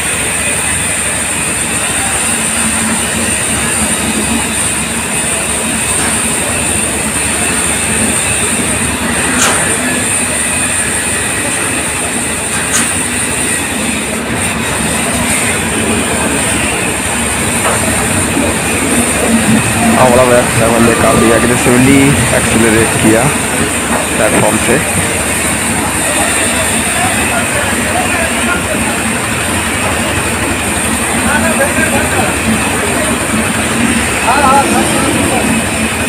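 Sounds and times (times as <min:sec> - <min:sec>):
high-pitched whine: 0:00.0 - 0:36.0
train rumbling past: 0:00.0 - 0:36.0
wheels clicking over rail joints: 0:02.6 - 0:10.7, 0:11.4 - 0:20.7.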